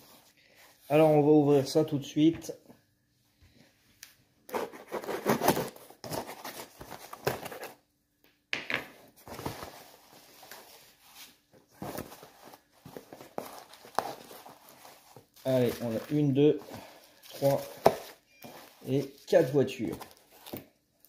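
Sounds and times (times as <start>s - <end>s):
packaging ripping and rustling: 11.8s - 20.7s.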